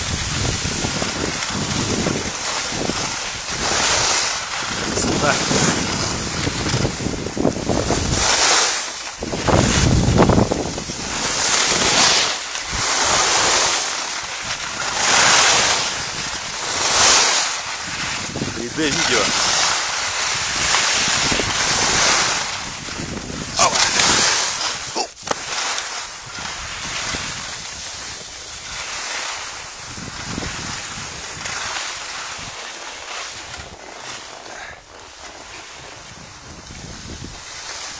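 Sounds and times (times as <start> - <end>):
wind buffeting microphone: 0.0 - 8.5, 9.2 - 13.5, 17.7 - 25.0, 26.2 - 28.8, 29.4 - 31.6, 35.8 - 37.6
skis hissing over snow: 0.0 - 37.9.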